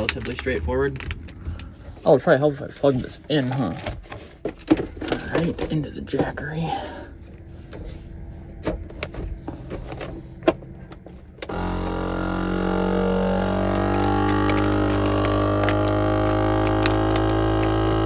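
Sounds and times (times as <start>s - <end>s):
vacuum pump droning hum: 3.9s - 18.0s.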